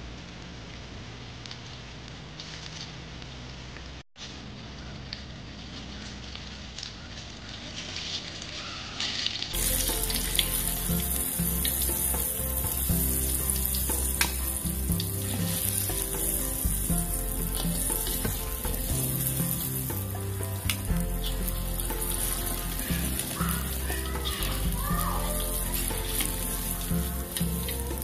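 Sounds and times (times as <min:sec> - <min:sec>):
oil sizzling in a wok: 0:08.6 - 0:28.0.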